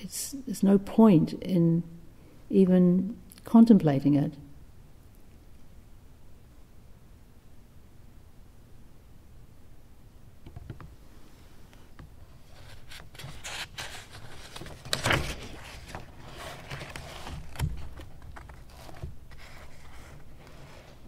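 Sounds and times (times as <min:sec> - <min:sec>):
rustling and scraping handling: 0:12.2 - 0:21.0.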